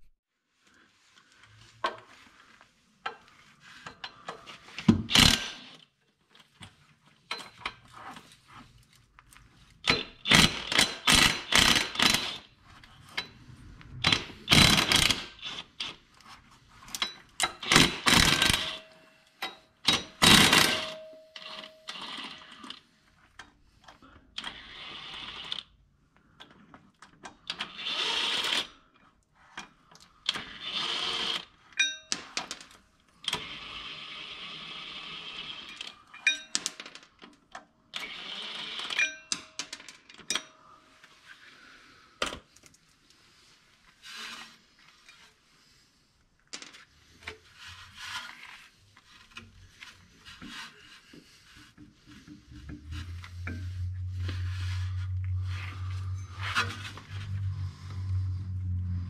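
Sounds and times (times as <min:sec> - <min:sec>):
impact wrench hammering bolts: 0:09.8 - 0:12.5, 0:14.0 - 0:15.9, 0:17.4 - 0:18.8, 0:19.8 - 0:21.6.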